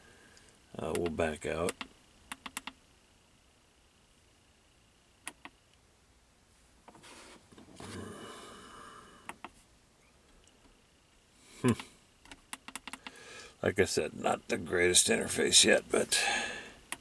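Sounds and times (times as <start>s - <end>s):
radio buttons clicking: 0.9s - 2.8s, 11.7s - 13.1s
soft noisy rustle: 3.0s - 8.3s.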